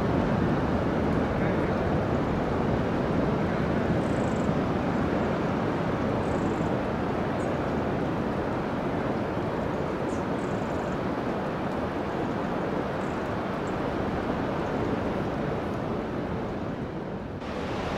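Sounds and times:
wind: 0.0 - 17.9
sea surf breaking: 17.4 - 17.9.

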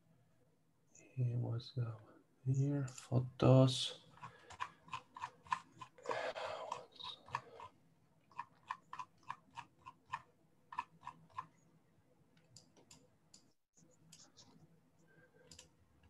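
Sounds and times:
breathy noise: 5.7 - 7.8
computer clicks: 15.4 - 15.8.

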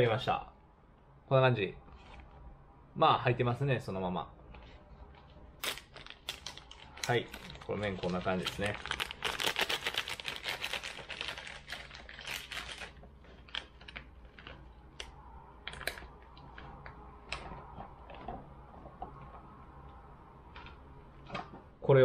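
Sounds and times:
plastic packaging crinkling: 5.6 - 16.9.

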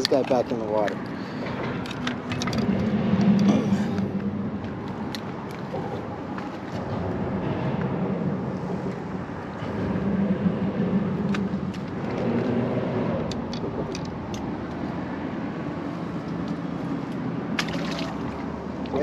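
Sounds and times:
fish splashing into water: 17.6 - 18.6.

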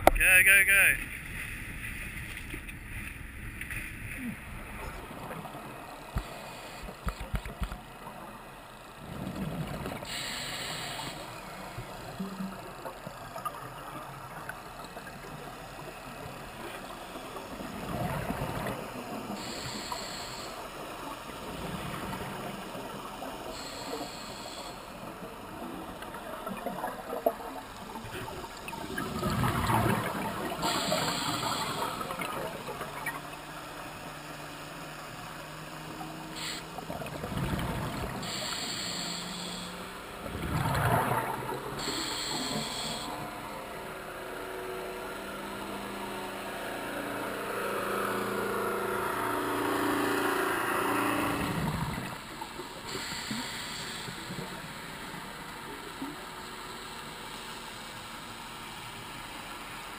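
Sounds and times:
muffled underwater noise: 4.0 - 44.4, 49.0 - 59.9
regulator inhalation hiss: 10.1 - 11.3, 19.4 - 20.6, 23.6 - 24.9, 30.6 - 32.0, 38.2 - 39.8, 41.8 - 43.2, 52.9 - 54.3
exhaled bubbles rushing: 25.4 - 33.4, 36.8 - 38.4, 40.2 - 41.9, 50.9 - 53.1.

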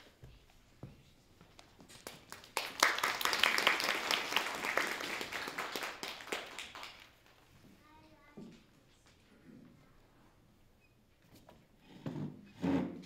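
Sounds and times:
audience applauding: 2.0 - 7.4.

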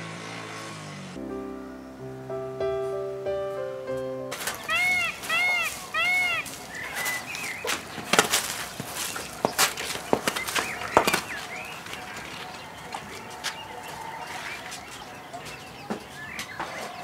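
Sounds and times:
small birds chirping: 4.2 - 17.0.

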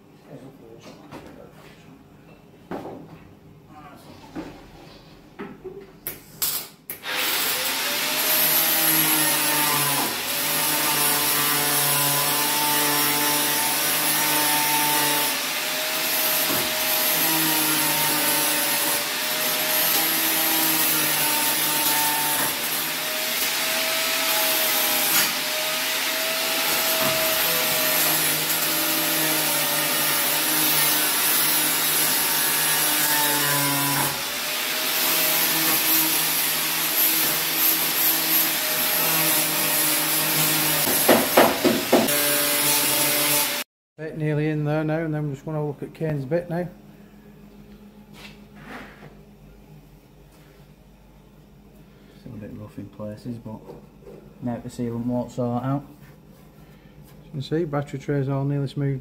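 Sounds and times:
grinder on steel: 7.0 - 43.7.

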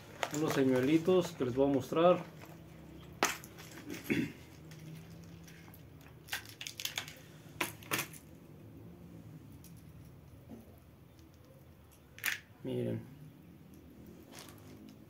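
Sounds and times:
plastic box and lures clattering: 0.0 - 8.3.

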